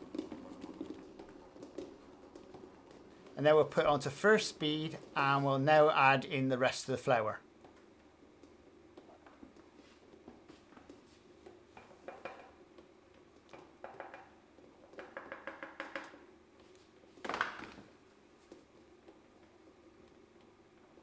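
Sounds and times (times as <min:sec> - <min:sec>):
rapid clattering taps: 0:00.0 - 0:03.9, 0:08.4 - 0:16.2.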